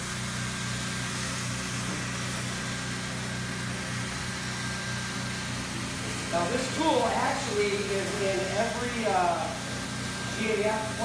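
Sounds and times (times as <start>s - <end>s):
hot-air blower hiss: 0.0s - 11.0s
low motor hum: 0.0s - 11.0s.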